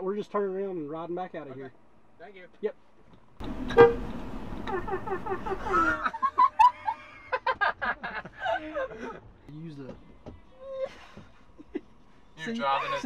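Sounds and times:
people laughing: 0:04.6 - 0:09.2.

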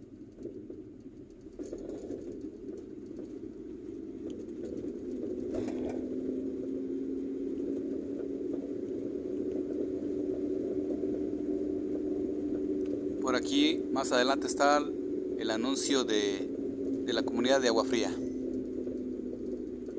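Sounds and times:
car engine and tyre noise: 0:00.0 - 0:19.9
engine hum rising in pitch: 0:00.0 - 0:19.9.

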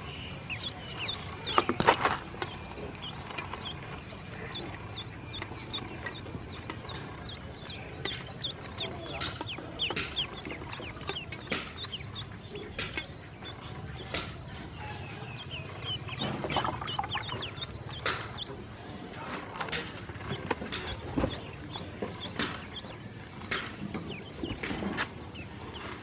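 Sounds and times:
ducklings peeping: 0:00.0 - 0:26.0
sharp clicks: 0:00.1 - 0:14.7.

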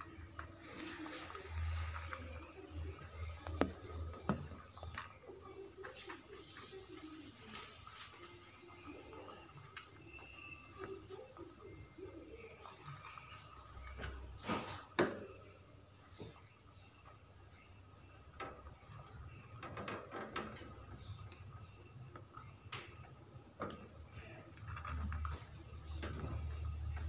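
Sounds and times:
animals crunching dry pellets: 0:00.0 - 0:14.9, 0:21.3 - 0:27.0.

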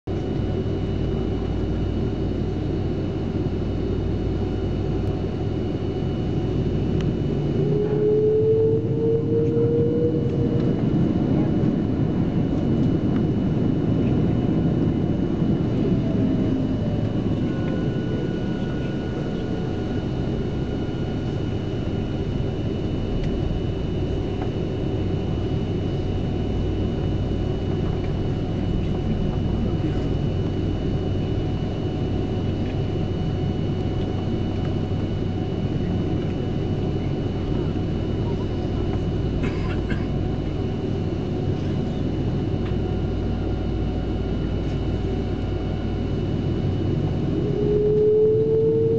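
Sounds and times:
low jet engine rumble: 0:00.1 - 0:48.9
thin steady whine: 0:00.1 - 0:48.9.

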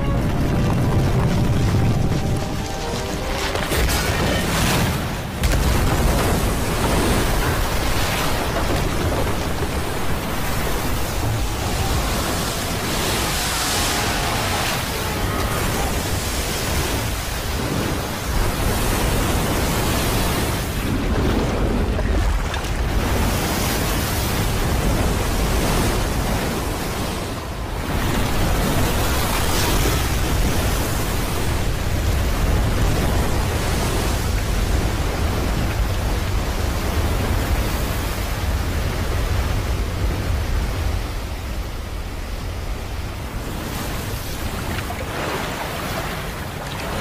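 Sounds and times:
deep rumble: 0:00.0 - 0:04.7
rushing floodwater: 0:00.0 - 0:47.0.

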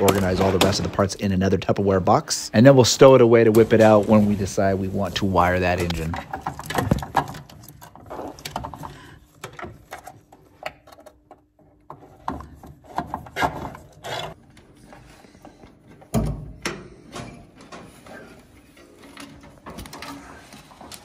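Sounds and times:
wiring harness clicking and rattling: 0:00.0 - 0:01.1, 0:05.5 - 0:14.4, 0:16.1 - 0:21.0.

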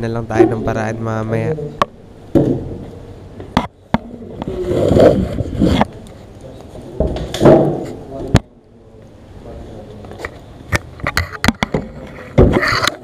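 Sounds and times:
sharp clicks and knocks: 0:10.1 - 0:13.0.

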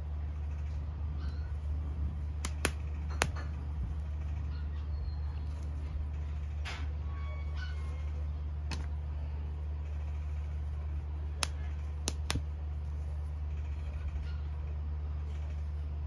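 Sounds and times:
steady low hum: 0:00.0 - 0:16.0
sharp snap clicks: 0:02.4 - 0:03.4, 0:11.4 - 0:12.5.

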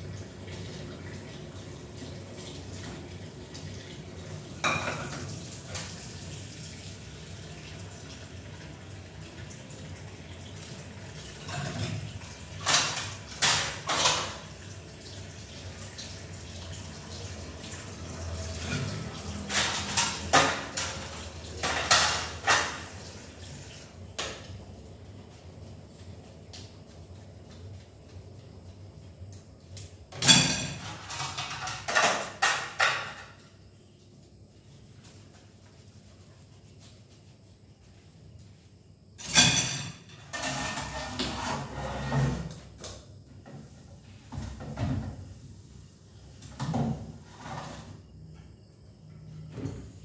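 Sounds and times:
water running and splashing: 0:00.0 - 0:29.2
dishes clattering at a sink: 0:02.4 - 0:06.4, 0:10.6 - 0:24.6, 0:30.1 - 0:33.6, 0:39.2 - 0:45.4, 0:46.4 - 0:48.0.

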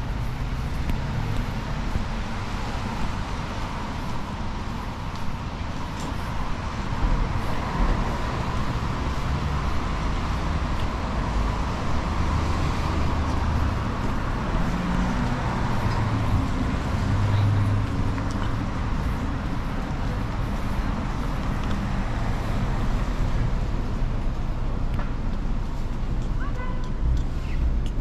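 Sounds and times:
cars and buses passing: 0:00.0 - 0:28.0
loud vehicle passing: 0:06.6 - 0:24.8.

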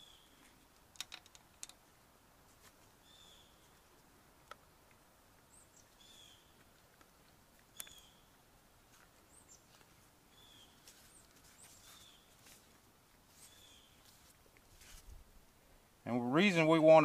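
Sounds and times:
faint bird chirps: 0:00.0 - 0:00.5, 0:03.0 - 0:03.8, 0:05.5 - 0:06.6, 0:07.7 - 0:08.3, 0:09.2 - 0:12.4, 0:13.4 - 0:14.1.

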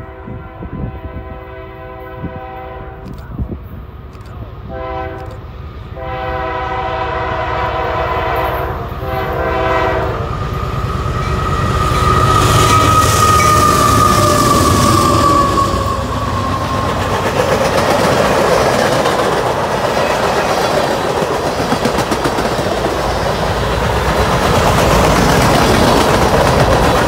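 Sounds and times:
locomotive air horn blasts: 0:00.0 - 0:03.1, 0:04.7 - 0:10.4
locomotive rumble passing: 0:00.0 - 0:27.0.

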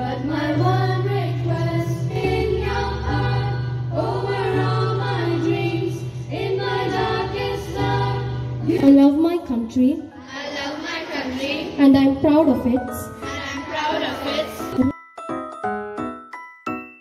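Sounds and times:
students singing into microphones: 0:00.0 - 0:08.8, 0:10.2 - 0:11.8.

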